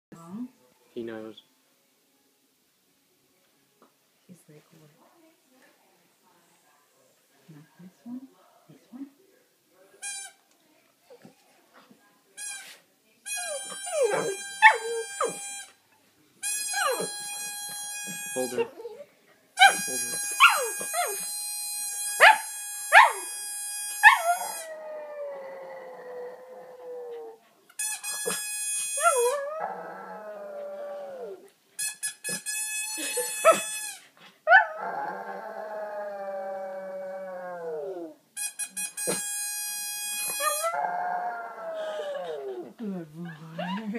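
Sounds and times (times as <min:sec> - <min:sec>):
squeaky chew-toy whistle tones: 0:13.3 - 0:15.8, 0:16.4 - 0:18.6, 0:19.6 - 0:24.7, 0:27.8 - 0:29.3, 0:31.8 - 0:34.1, 0:38.4 - 0:40.8.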